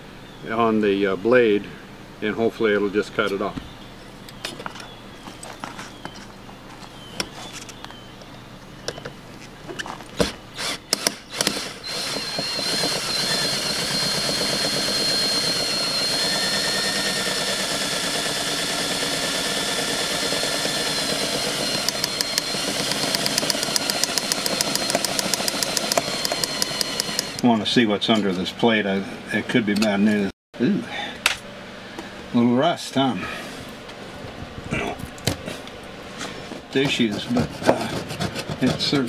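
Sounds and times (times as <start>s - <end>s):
power drill whining: 10.6s - 27.5s
fast even clicking: 21.6s - 27.4s
knocks and clicks: 21.8s - 27.4s.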